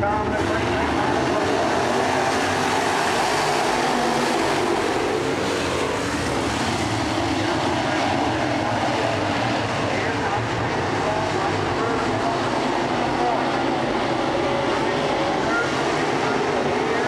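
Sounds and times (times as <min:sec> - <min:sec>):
race car engines droning: 0:00.0 - 0:17.0.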